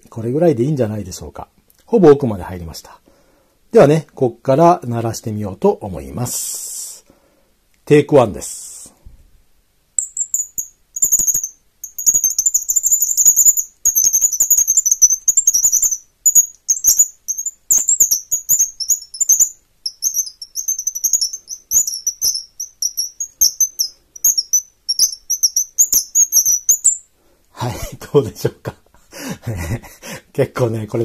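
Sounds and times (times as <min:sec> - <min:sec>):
squeaky wooden bird call chirps: 0:10.0 - 0:27.1.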